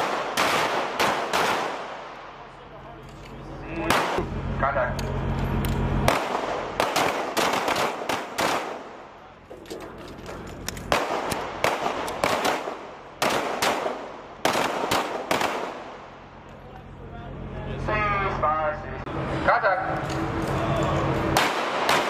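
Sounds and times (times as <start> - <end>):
pistol shots: 0.0 - 2.3, 3.9 - 4.3, 6.1 - 9.1, 10.3 - 16.2, 21.4 - 22.0.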